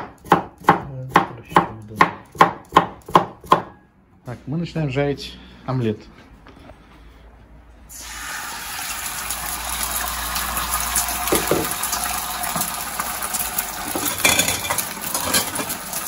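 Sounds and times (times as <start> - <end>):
egg sizzling in a frying pan: 7.9 - 16.0.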